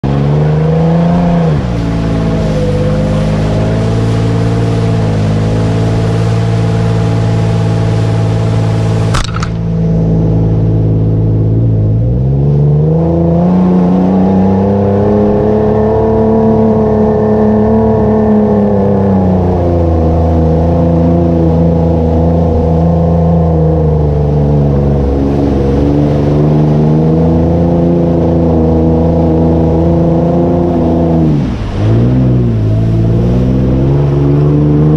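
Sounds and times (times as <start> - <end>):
truck engine revving in mud: 0.0 - 34.9
sharp click: 9.1 - 9.7.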